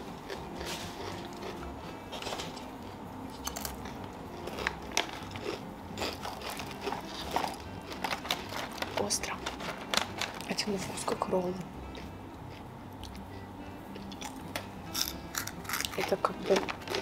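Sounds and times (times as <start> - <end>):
crunchy snack being chewed: 0.2 - 2.0, 2.8 - 10.4, 14.0 - 17.0.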